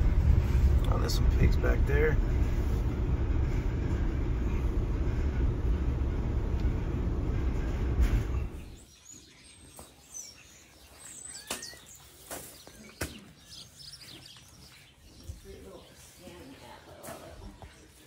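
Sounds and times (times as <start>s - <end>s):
truck road and engine rumble: 0.0s - 8.8s
small birds chirping: 7.7s - 18.0s.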